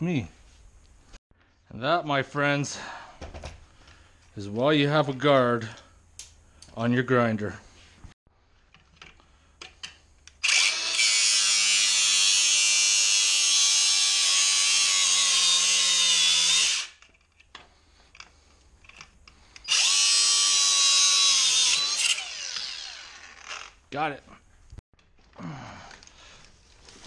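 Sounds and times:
angle grinder cutting metal: 10.4 - 17.0, 19.6 - 23.8.

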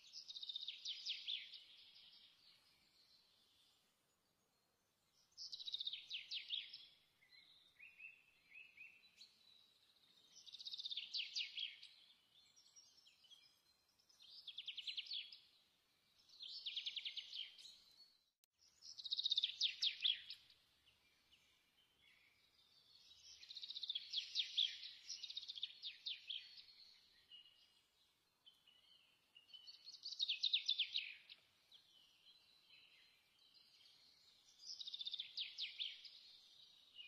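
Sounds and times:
small bird trilling song: 22.0 - 27.6, 28.5 - 37.0.

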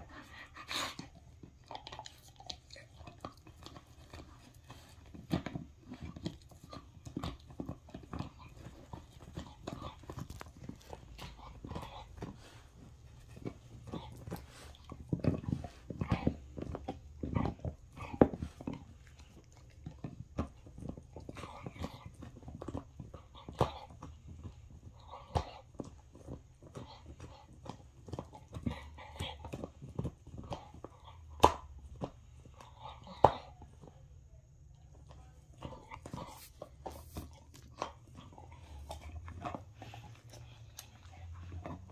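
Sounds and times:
dog chewing cloth: 0.0 - 34.0, 35.0 - 41.9
jaws chomping clicks: 0.3 - 33.6.

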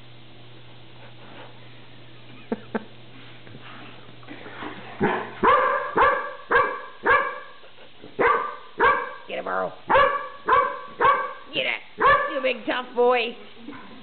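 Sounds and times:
dog barking: 5.0 - 7.6, 8.2 - 9.3, 9.9 - 12.5.

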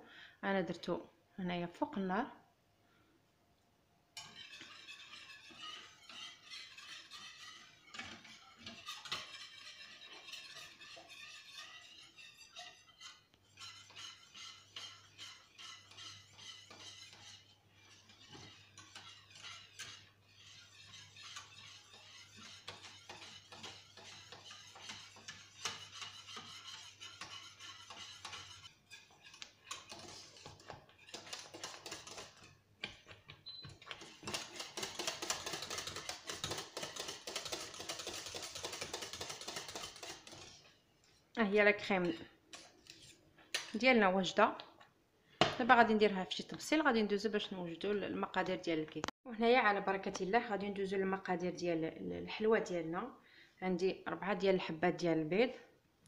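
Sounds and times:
whisk rattling in metal saucepan: 4.2 - 41.2.

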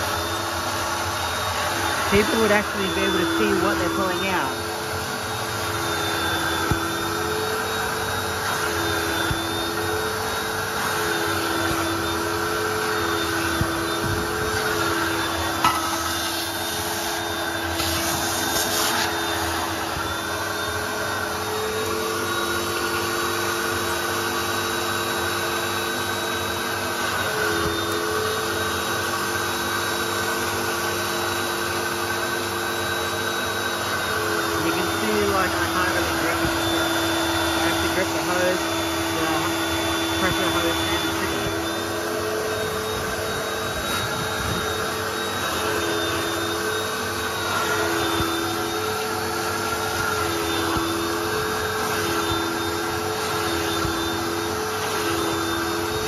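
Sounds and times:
nozzle sucking on carpet: 0.0 - 31.1, 31.7 - 56.0
vacuum motors running: 0.0 - 56.0.

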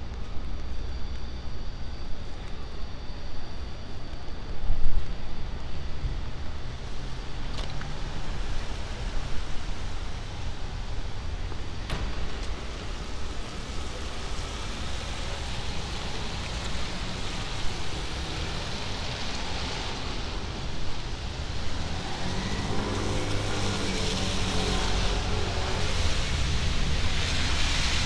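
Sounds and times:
vehicle engine hum: 4.1 - 28.0
tyres hissing on wet road: 6.8 - 28.0.

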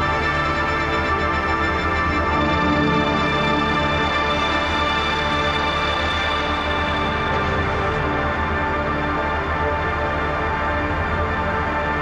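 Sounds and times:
music with held notes: 0.0 - 12.0.

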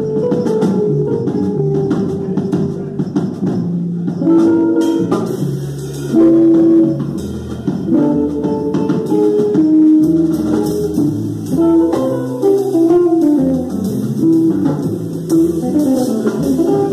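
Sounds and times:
drum kit: 0.0 - 16.9
jazz combo playing: 0.0 - 16.9
upright bass: 0.0 - 16.9.

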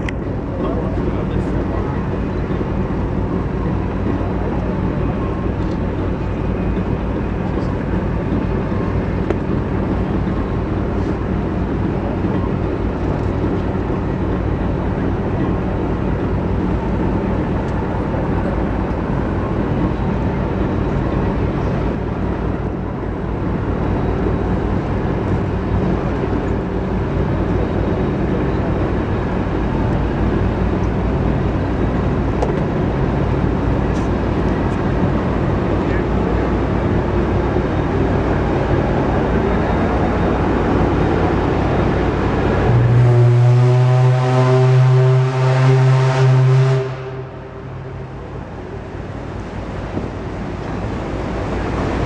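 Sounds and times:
steam engine and paddle wheels droning: 0.0 - 52.0
water rushing: 23.5 - 52.0.

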